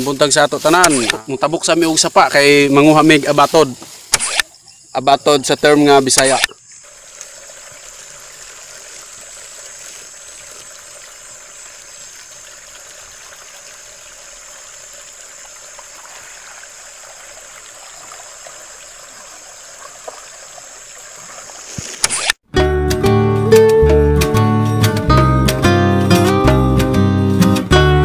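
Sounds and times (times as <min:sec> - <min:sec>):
creek water flowing: 0:00.0 - 0:22.4
guitar music: 0:22.5 - 0:28.0.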